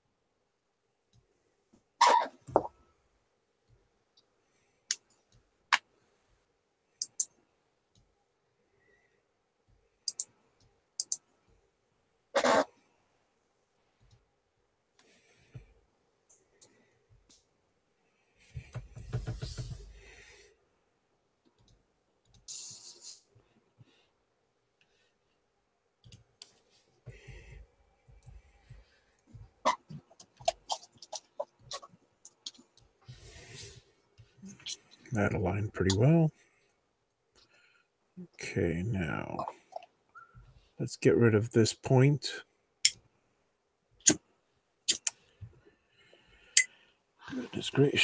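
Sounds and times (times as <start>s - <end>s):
computer mouse clicking: 7.0s - 7.3s, 10.1s - 10.3s, 11.0s - 11.2s.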